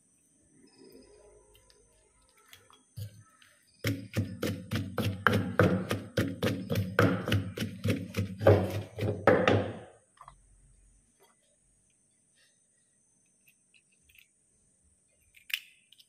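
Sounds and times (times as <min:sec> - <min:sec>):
wooden pestle pounding in mortar: 0:03.8 - 0:09.8.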